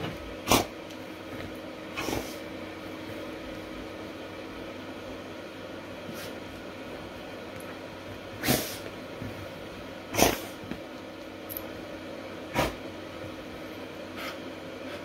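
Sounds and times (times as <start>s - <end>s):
dog snorting: 0.4s - 0.7s, 1.9s - 2.4s, 8.4s - 8.8s, 10.1s - 10.6s, 12.5s - 12.8s.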